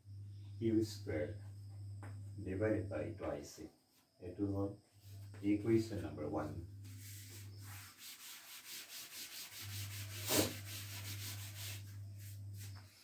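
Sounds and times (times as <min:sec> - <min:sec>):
duster rubbing chalk off blackboard: 0:06.8 - 0:13.0.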